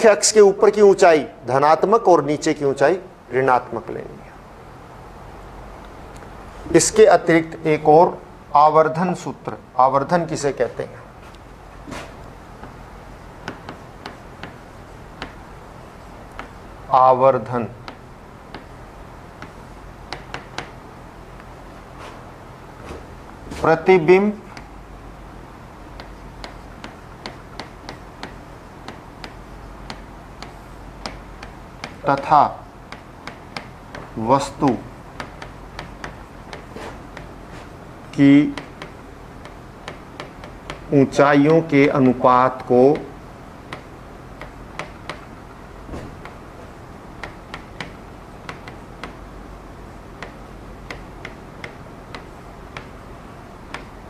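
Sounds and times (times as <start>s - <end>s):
low steady hum: 0.0s - 54.0s
pen tapping on writing board: 13.4s - 15.4s, 16.3s - 16.6s, 17.8s - 18.8s, 19.4s - 20.8s, 26.0s - 32.0s, 32.9s - 34.1s, 34.7s - 37.4s, 38.5s - 40.9s, 41.5s - 45.3s, 47.2s - 49.2s, 50.2s - 52.9s.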